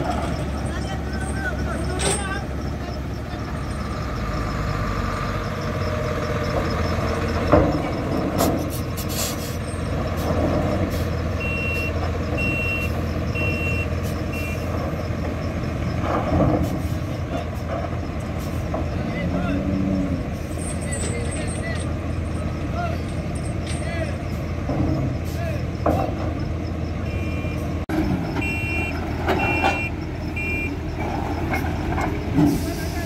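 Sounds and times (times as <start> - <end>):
diesel truck engine running: 0.0 - 33.0
reversing alarm beeps: 11.4 - 16.4, 26.4 - 27.8, 28.4 - 31.0.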